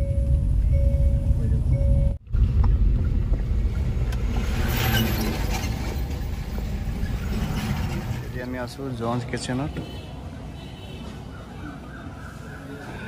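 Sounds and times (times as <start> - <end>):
car engine and tyre rumble: 0.0 - 9.5.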